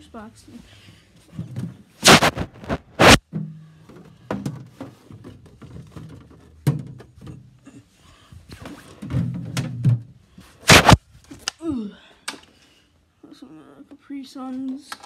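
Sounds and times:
phone microphone rubbing on jacket: 2.0 - 3.2, 10.7 - 11.0
sharp thunk: 10.7 - 11.0.

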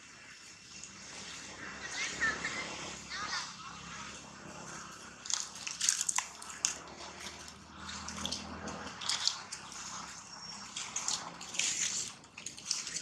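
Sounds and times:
rustling grass and dry leaves: 4.2 - 13.0.

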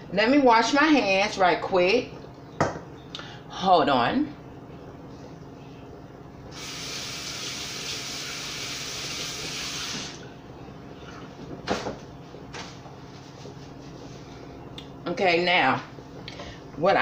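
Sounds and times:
kitchen tap running: 6.5 - 10.2.

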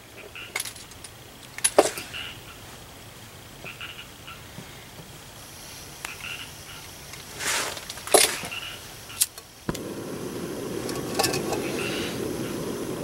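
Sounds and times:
stove burner burning: 9.1 - 13.0
stove igniter clicks: 9.2 - 13.0
gas rushing: 9.5 - 13.0.

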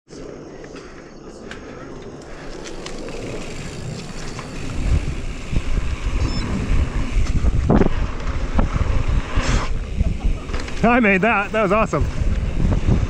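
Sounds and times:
bike rattle: 2.2 - 13.0
wind buffeting microphone: 2.3 - 13.0.

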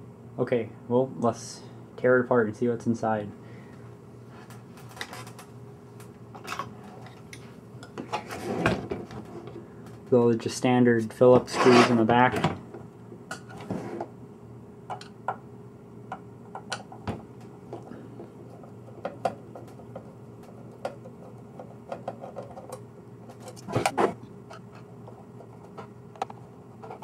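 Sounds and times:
metal scrape: 11.5 - 12.0.

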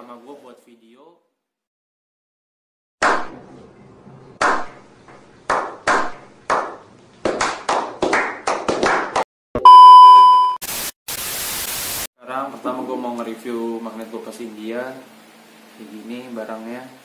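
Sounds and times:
group clapping: 4.4 - 4.7, 5.5 - 9.3
test-tone beep: 9.6 - 10.6
tv static: 10.6 - 12.1.

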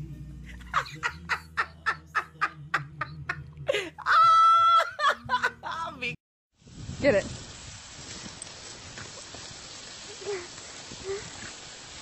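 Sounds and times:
woman laughing hard: 0.6 - 6.0.

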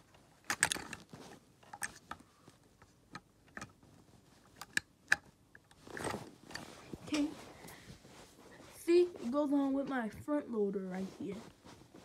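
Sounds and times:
clicks of toy metal parts: 0.5 - 1.0.

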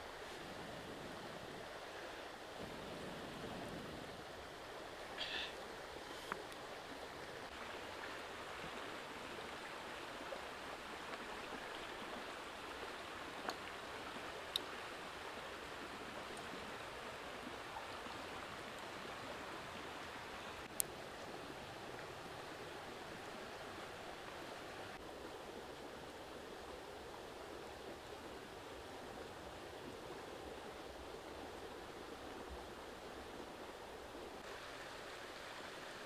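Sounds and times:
river running over stones: 0.0 - 36.0.

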